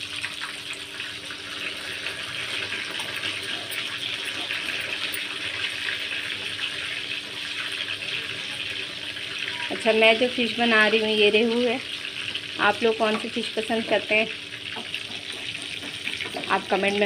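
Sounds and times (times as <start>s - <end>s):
fish sizzling in oil: 0.0s - 17.0s
metal spatula turning fish: 1.8s - 9.9s.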